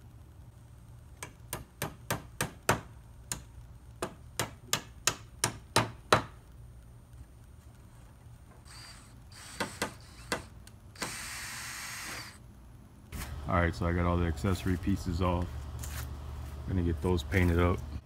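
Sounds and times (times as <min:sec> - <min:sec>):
hammer striking wood: 0:01.2 - 0:06.4.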